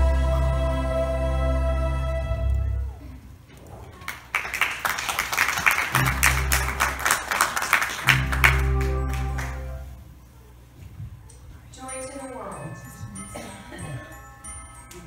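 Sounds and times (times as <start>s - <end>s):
music: 0.0s - 3.0s, 5.9s - 7.2s, 7.9s - 10.1s, 11.8s - 15.0s
sustained low chords: 0.0s - 3.0s, 6.0s - 7.0s, 8.1s - 10.2s
audience applause: 3.9s - 9.9s.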